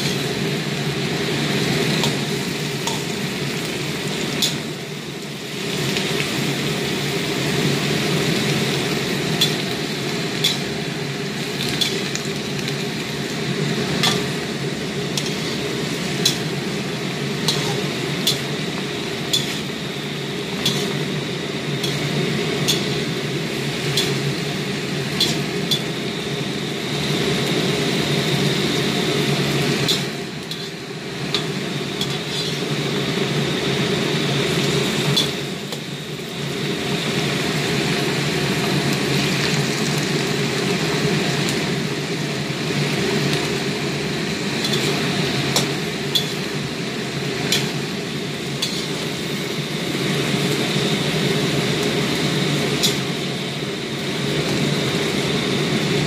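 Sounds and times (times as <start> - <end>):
metal spatula scraping a wok: 0.0 - 0.6, 4.2 - 4.8, 9.3 - 10.9, 11.6 - 12.7, 13.4 - 26.0, 29.7 - 33.4, 35.1 - 35.5, 44.5 - 49.4, 52.7 - 53.2
frying hiss: 0.0 - 56.0.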